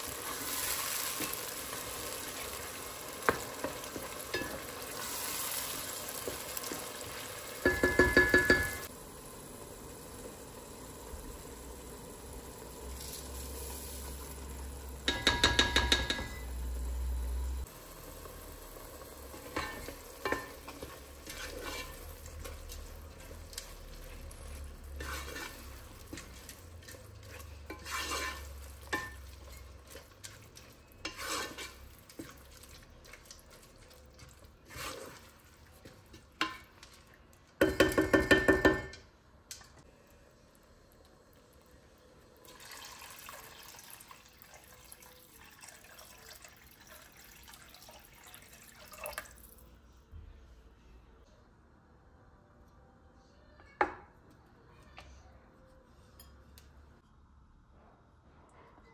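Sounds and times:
wooden spoon scraping a pot: 19.3s - 37.0s
water poured into a pot: 41.0s - 49.8s.

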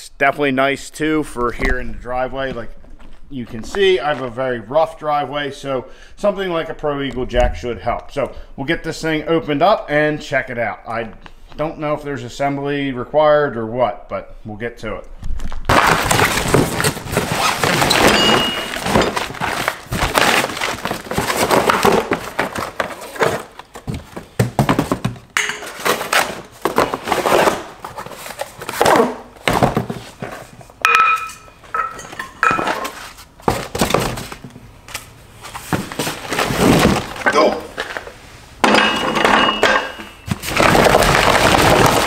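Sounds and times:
cardboard ripping and rustling: 15.6s - 25.1s, 25.7s - 30.6s, 35.5s - 38.0s, 40.3s - 42.0s.

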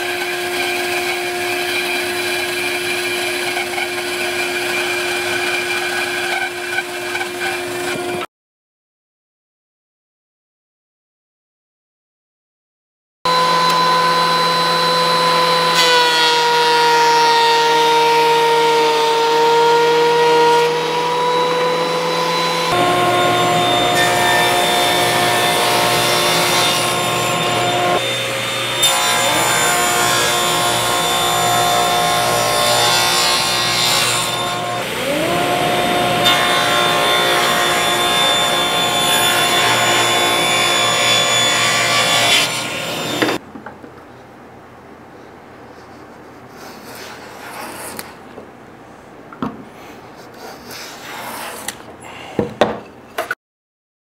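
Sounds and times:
blade cutting wood: 0.0s - 8.2s, 13.3s - 43.4s
power tool motor whining: 21.0s - 32.3s, 34.3s - 41.4s.

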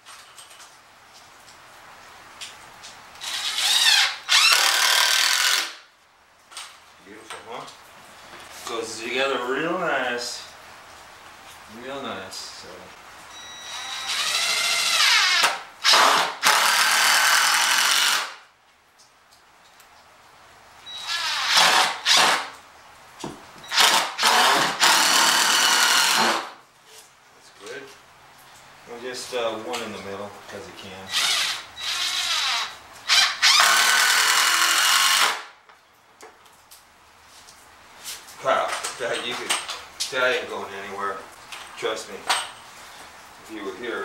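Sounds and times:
impact driver driving screw into wood: 3.2s - 5.8s, 13.8s - 18.4s, 21.0s - 22.5s, 23.7s - 26.6s, 31.1s - 35.5s.

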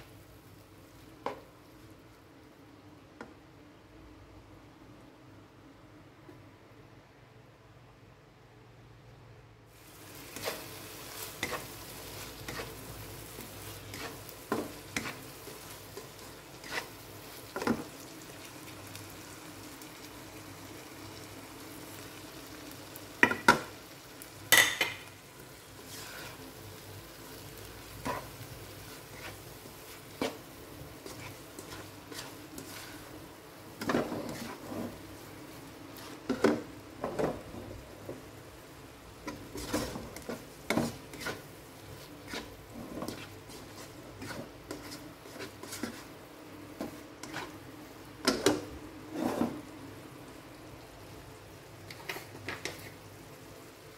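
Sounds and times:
food sizzling in a wok: 0.0s - 2.6s, 9.6s - 53.9s
spatula stirring and scraping: 9.7s - 19.4s, 24.5s - 49.8s, 51.8s - 53.2s.

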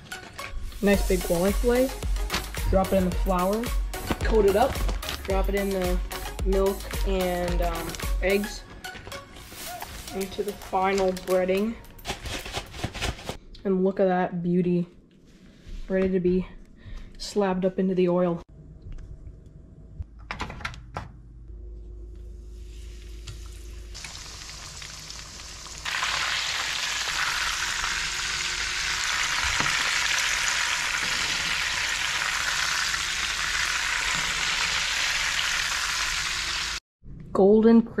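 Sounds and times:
fish sizzling in oil: 22.5s - 36.8s.

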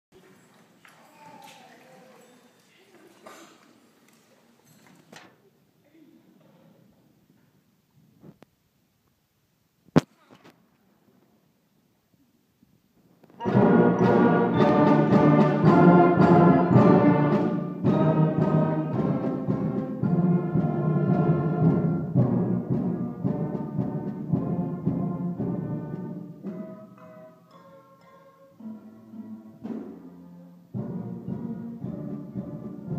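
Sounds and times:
wind band with trombones playing: 13.4s - 32.9s.

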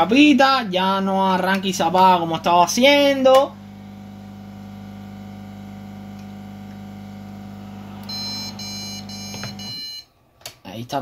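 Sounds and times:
steady low hum: 1.7s - 10.0s
short high beeps: 8.1s - 10.1s.

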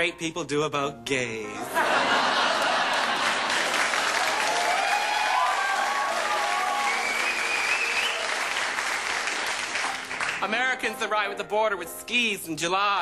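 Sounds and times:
audience applauding: 2.4s - 10.5s.

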